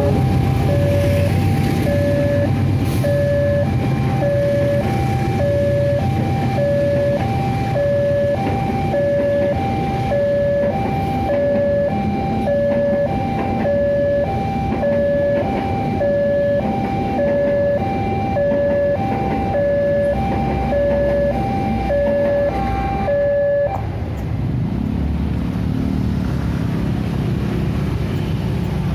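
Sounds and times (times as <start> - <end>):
level crossing two-tone alarm: 0.0 - 23.8
motorbike engines: 0.0 - 28.9
train carriages rumbling past: 0.0 - 28.9.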